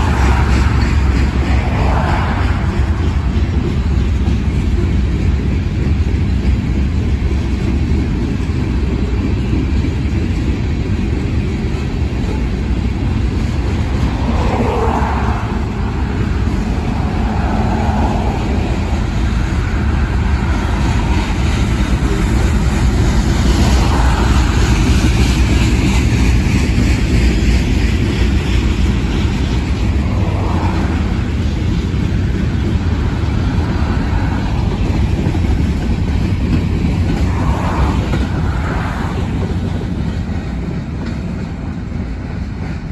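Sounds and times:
car driving by: 0.0 - 3.9, 13.7 - 25.8
train wheels rumbling on rails: 0.0 - 42.9.

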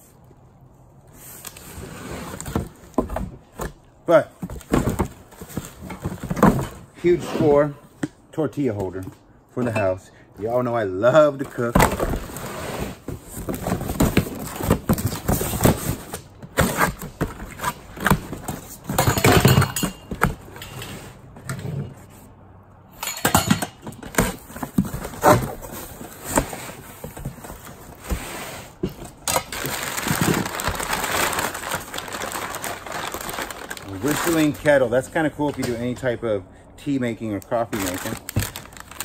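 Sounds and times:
cardboard box knocks and clatter: 4.4 - 6.8, 13.1 - 20.5, 23.9 - 28.1, 38.3 - 38.6
paper rustling: 29.5 - 34.6, 37.6 - 39.0.

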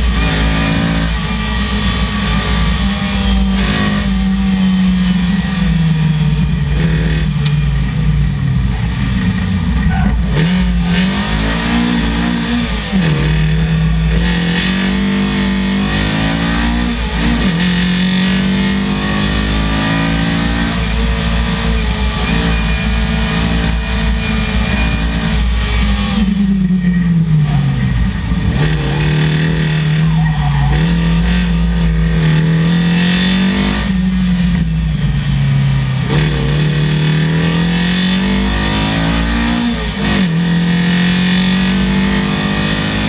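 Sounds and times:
rally car engine revving: 0.0 - 43.0.

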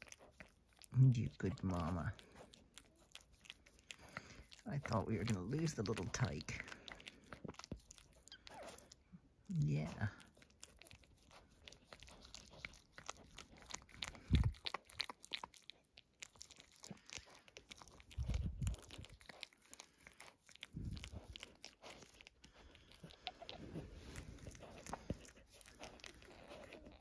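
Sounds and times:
dog licking puppy wet clicks: 0.0 - 8.9.

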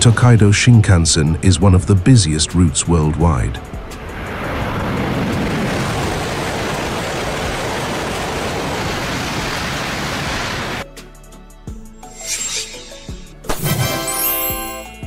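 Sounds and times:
train passing at high speed: 3.6 - 9.8
soft music: 10.9 - 15.0.

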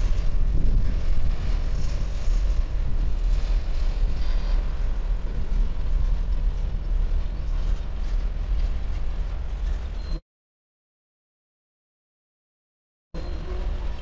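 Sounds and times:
steel wheels rumbling on rails: 0.0 - 10.2, 13.2 - 14.0.

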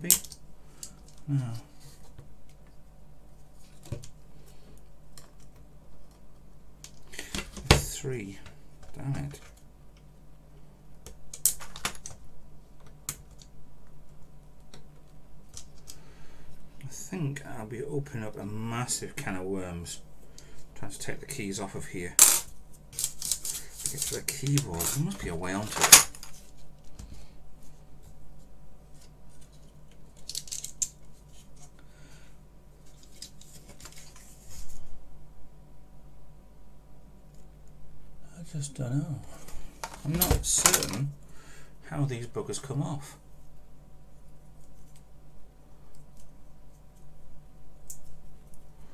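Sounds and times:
faint low hum: 0.0 - 48.9
clicks and rattles of keyboard parts: 30.2 - 31.0.

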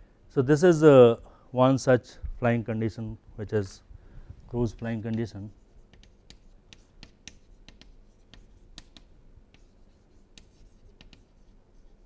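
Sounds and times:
chalk writing on chalkboard: 4.6 - 12.0.

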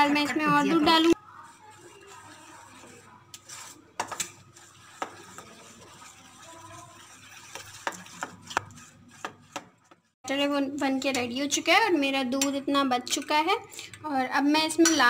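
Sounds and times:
spoon scraping steel bowl: 0.1 - 10.2.

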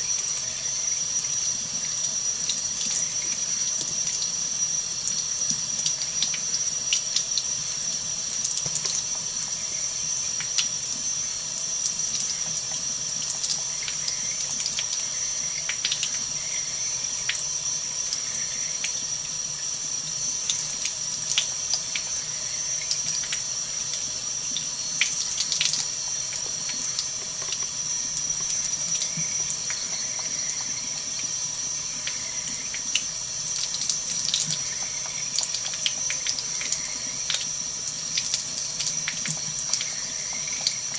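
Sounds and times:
faucet running into sink: 0.0 - 40.9
water splashing and dripping: 11.8 - 16.3, 22.8 - 31.3, 32.0 - 40.9.

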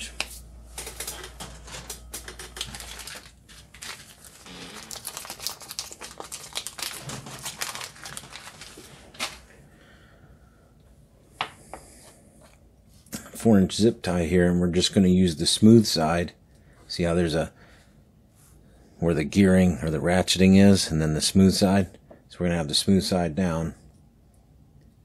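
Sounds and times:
hands rummaging through zip ties: 0.8 - 9.4.

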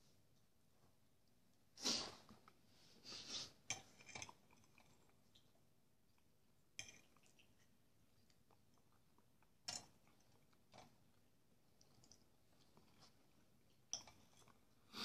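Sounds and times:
person chewing food: 3.6 - 14.8.

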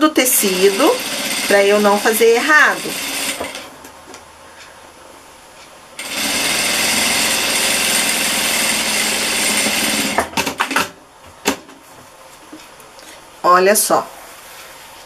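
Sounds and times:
sewing machine stitching: 0.2 - 3.7, 6.0 - 10.9.

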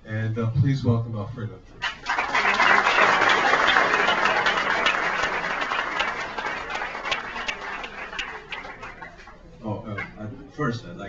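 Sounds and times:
audience applauding: 1.8 - 9.5.

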